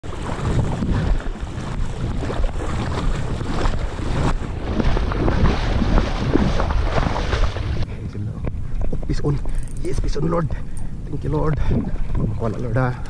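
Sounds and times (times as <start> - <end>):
shallow seawater splashing: 0.0 - 7.9
wind buffeting microphone: 0.0 - 13.0.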